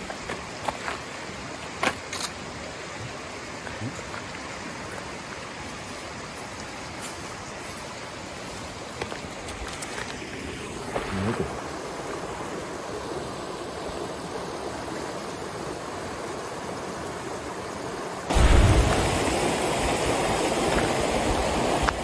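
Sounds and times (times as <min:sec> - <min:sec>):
steady rushing noise: 0:17.7 - 0:22.0.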